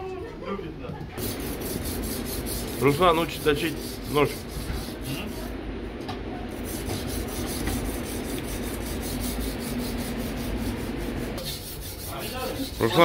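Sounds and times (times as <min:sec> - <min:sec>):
blade scraping on whetstone: 0:06.6 - 0:13.0.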